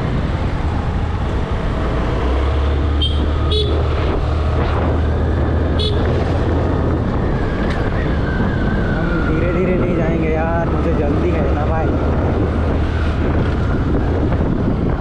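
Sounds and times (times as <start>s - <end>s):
scooter wind and drone: 0.0s - 15.0s
high-pitched horn toots: 3.0s - 3.9s, 5.7s - 6.1s.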